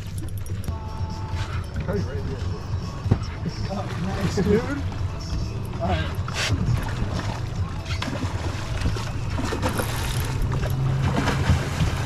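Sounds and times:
boat engine idling: 0:00.0 - 0:12.0
fish splashing in water: 0:06.2 - 0:12.0.

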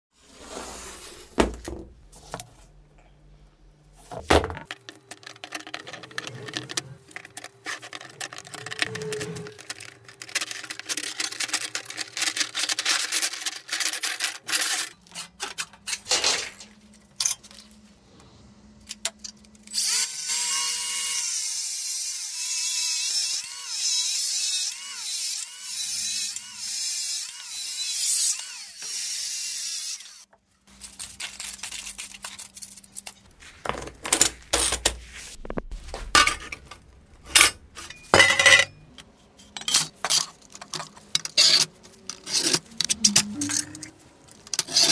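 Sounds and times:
angle grinder cutting steel: 0:19.7 - 0:30.3
saw blades clattering: 0:37.3 - 0:43.7.

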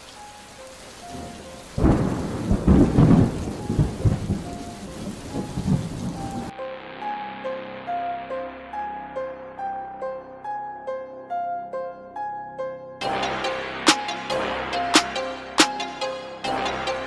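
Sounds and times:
steady rain: 0:00.0 - 0:06.5, 0:13.0 - 0:17.0
thunder crack rolling: 0:01.1 - 0:06.5.

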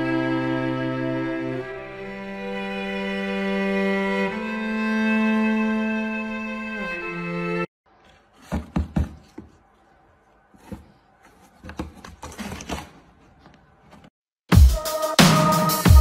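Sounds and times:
paper rustling: 0:07.9 - 0:14.2
thumps and scraping on cardboard: 0:08.1 - 0:09.6, 0:10.5 - 0:14.2.

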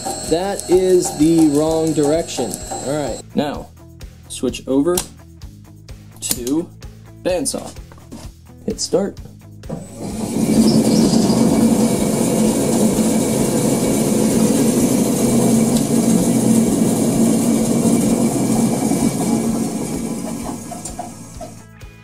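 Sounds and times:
band saw motor hum: 0:00.0 - 0:03.2, 0:09.7 - 0:21.6.

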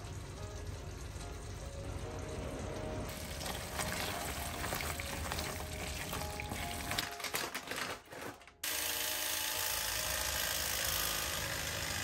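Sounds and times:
soft background music: 0:00.0 - 0:12.0.

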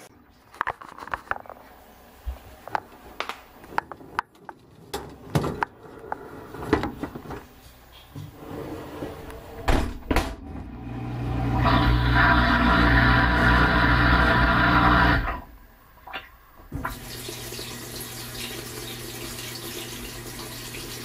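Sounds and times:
dishwasher low hum: 0:01.6 - 0:21.0
dishwasher clicks and knocks: 0:09.6 - 0:10.5.

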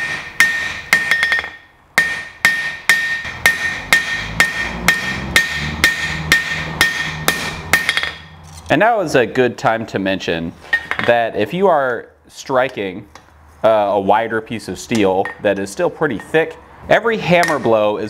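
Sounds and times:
hammer striking hot steel on anvil: 0:00.0 - 0:08.3, 0:17.4 - 0:17.7.

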